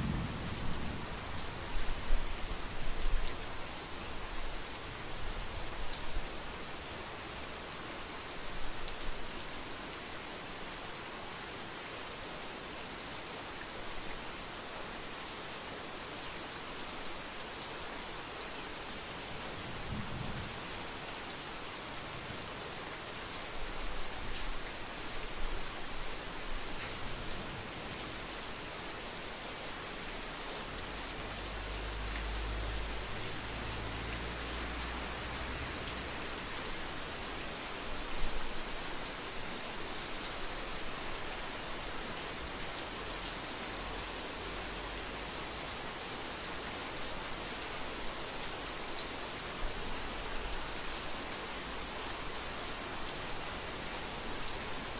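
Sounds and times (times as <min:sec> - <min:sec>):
distant thunder rumbles: 0:00.0 - 0:02.2
heavy rain on a roof: 0:00.0 - 0:54.9.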